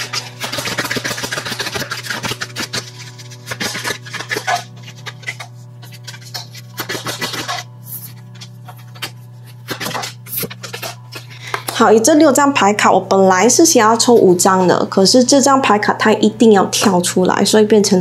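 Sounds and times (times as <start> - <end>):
cards being shuffled: 0.0 - 11.7.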